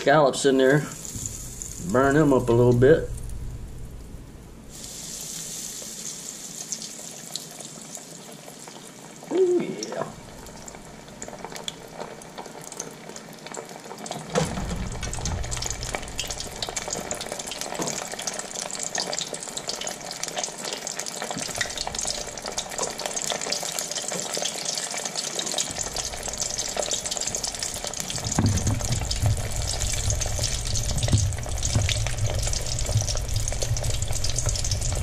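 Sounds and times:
oil sizzling in deep fryer: 0.0s - 35.0s.

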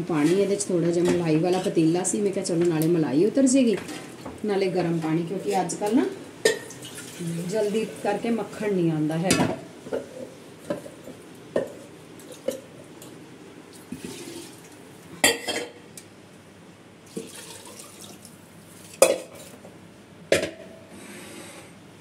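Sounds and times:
water sloshing and pouring: 6.7s - 7.8s, 13.7s - 14.8s, 17.0s - 19.5s.

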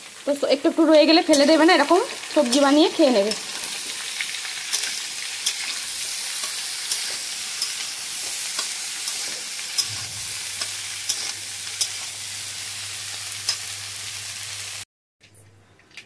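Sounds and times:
vegetables sizzling in oil: 0.0s - 14.9s
metal spatula scraping pan: 3.3s - 12.1s.

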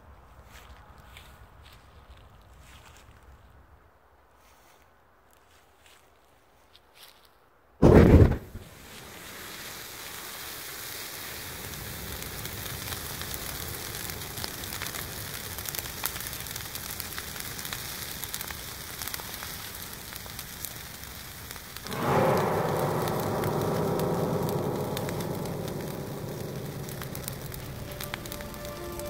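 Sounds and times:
fire hissing and crackling: 7.8s - 29.0s
reeds igniting burst: 7.8s - 29.0s.

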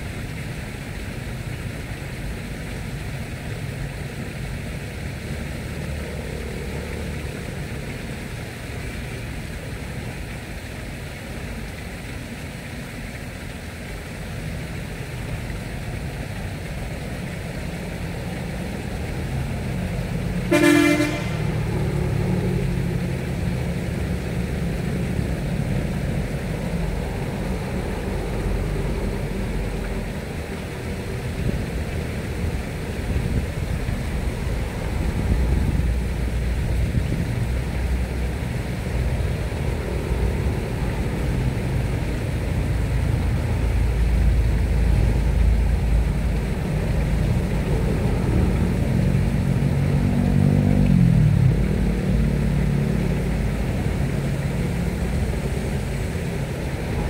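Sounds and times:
steady low rumble: 14.9s - 50.1s, 50.9s - 57.0s.

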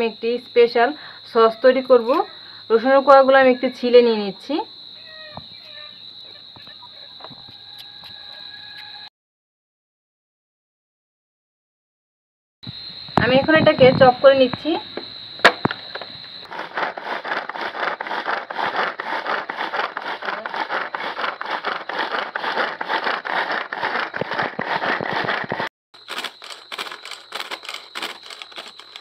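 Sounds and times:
food chopper rattling: 15.4s - 29.0s.

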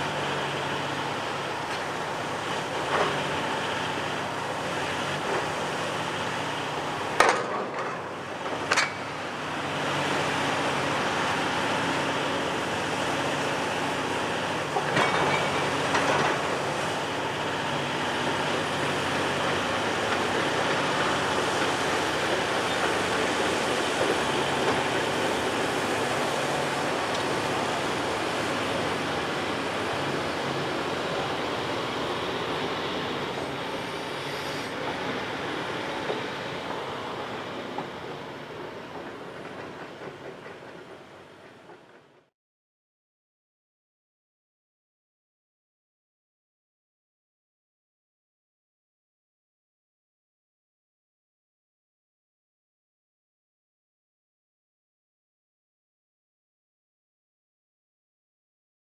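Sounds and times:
excavators running: 0.0s - 42.3s.

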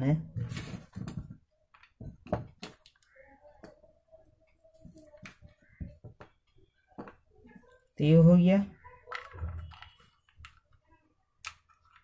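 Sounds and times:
plastic parts clicking and knocking: 0.8s - 3.8s, 9.0s - 12.0s.

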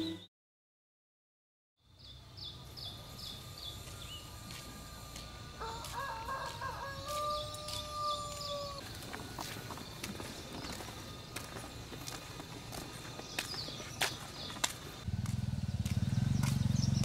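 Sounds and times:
bird chirping: 0.0s - 0.3s, 1.9s - 4.4s, 7.2s - 15.0s, 15.9s - 17.0s
rooster crowing: 5.6s - 8.9s.

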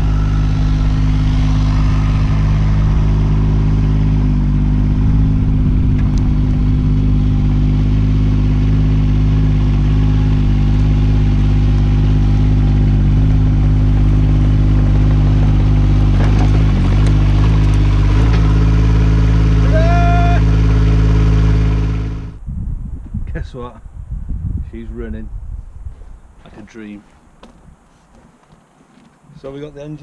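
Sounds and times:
diesel engine running: 0.0s - 22.4s.

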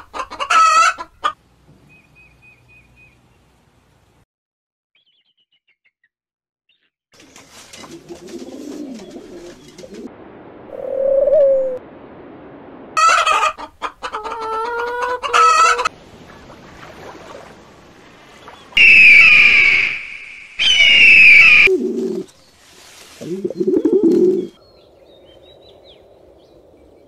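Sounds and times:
chickens clucking: 0.0s - 1.4s, 7.5s - 10.1s, 13.0s - 17.5s
loud chicken call: 0.0s - 1.4s, 13.0s - 15.9s, 18.8s - 21.7s.

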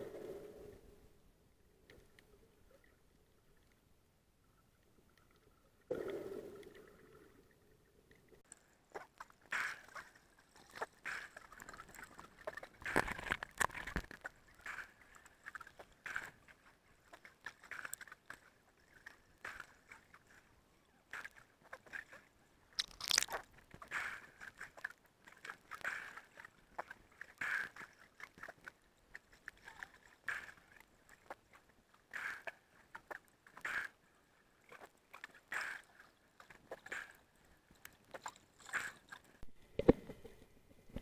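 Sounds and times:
muffled underwater crackles and knocks: 8.4s - 22.2s, 34.7s - 41.0s.

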